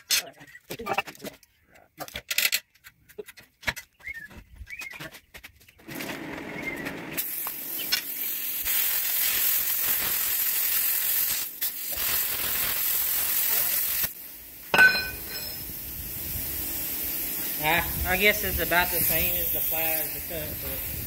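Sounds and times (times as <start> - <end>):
plasma cutter hissing: 7.2 - 21.0
steel strip clanking on concrete: 14.7 - 15.7.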